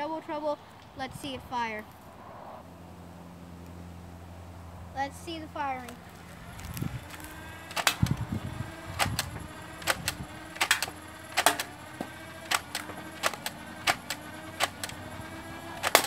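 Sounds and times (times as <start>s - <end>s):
spinning motors humming: 0.0s - 16.0s
dart blaster firing clicks: 7.0s - 16.0s.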